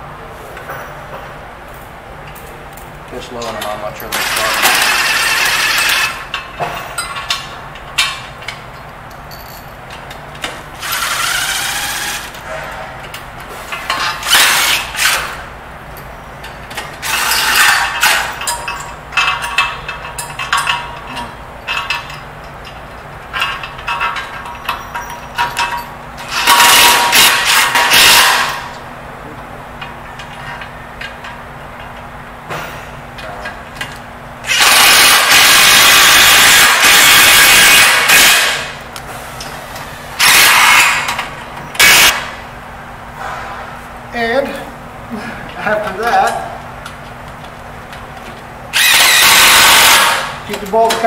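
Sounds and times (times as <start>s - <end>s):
metal parts clinking: 3.4s - 10.1s, 16.0s - 28.7s
cordless drill running: 10.8s - 12.3s, 34.5s - 38.6s, 48.7s - 50.3s.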